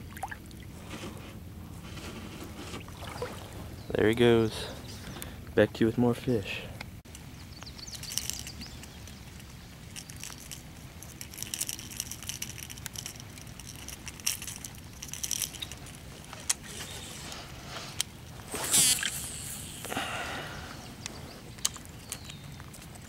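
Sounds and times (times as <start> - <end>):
fishing gear clicks and rattles: 7.1 - 20.2, 20.9 - 23.0.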